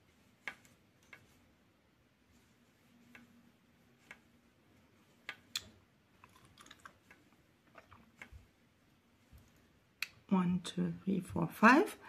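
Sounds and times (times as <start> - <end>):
crochet hook clicking: 0.3 - 1.4, 3.0 - 4.4, 5.2 - 5.8.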